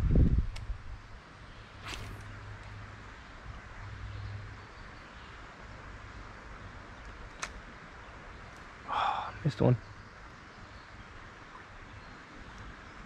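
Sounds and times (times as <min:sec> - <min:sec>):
creek hiss: 0:01.7 - 0:02.6, 0:08.8 - 0:09.8.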